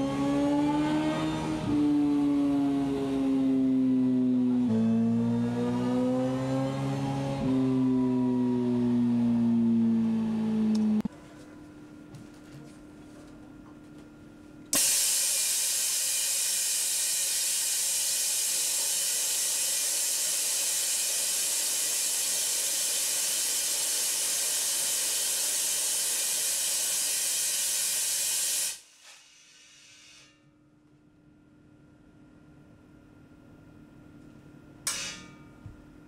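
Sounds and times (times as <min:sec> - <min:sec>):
compressed air hissing: 0:14.8 - 0:30.3.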